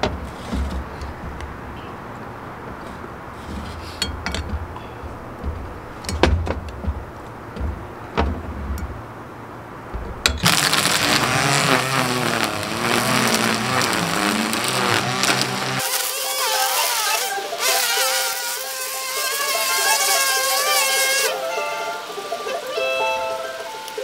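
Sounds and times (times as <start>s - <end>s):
cutlery clinking on plates: 3.9s - 5.1s
string trimmer whining: 10.4s - 21.4s.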